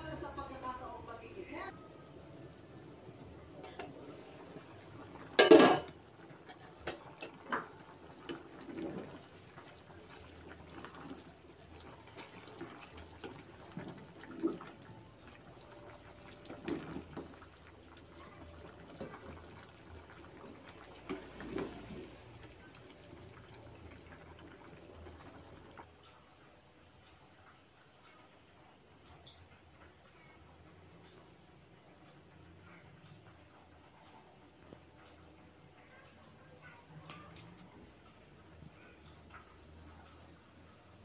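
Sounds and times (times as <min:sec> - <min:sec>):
metal pot lid clanking: 0:05.3 - 0:05.9
spatula stirring thick soup: 0:06.1 - 0:25.8.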